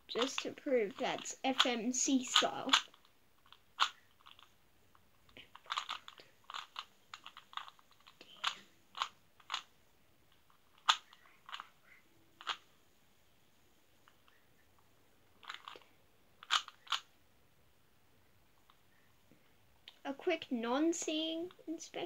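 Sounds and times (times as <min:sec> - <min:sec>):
puzzle cube layers clicking: 0:00.1 - 0:09.7, 0:10.3 - 0:11.8, 0:12.4 - 0:12.6, 0:15.4 - 0:17.1.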